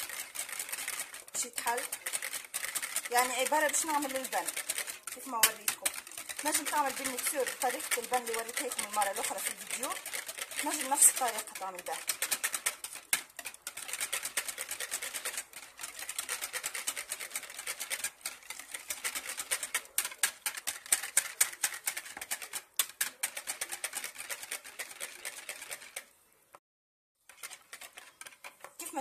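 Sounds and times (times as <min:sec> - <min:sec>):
whisk clicking against bowl: 0:00.0 - 0:26.1, 0:27.2 - 0:29.0.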